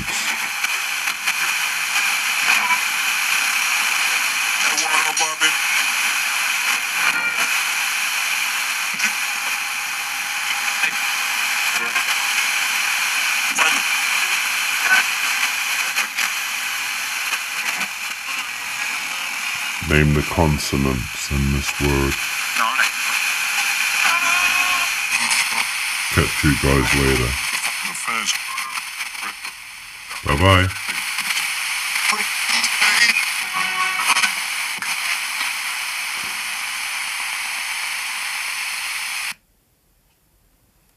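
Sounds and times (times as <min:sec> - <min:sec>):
radio static hiss: 0:00.0 - 0:39.4
radio crackles: 0:13.4 - 0:39.4.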